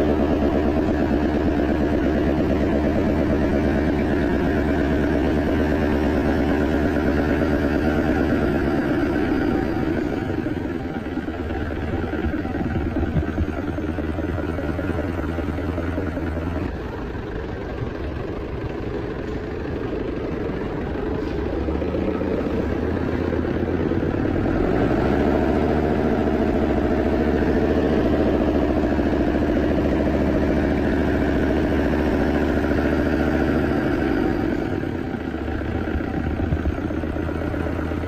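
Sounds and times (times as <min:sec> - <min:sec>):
diesel engine running: 0:00.0 - 0:38.0.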